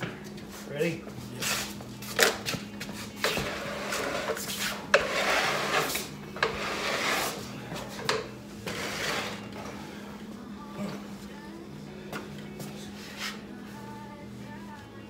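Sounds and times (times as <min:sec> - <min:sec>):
wood scraping on concrete: 0:03.0 - 0:09.5.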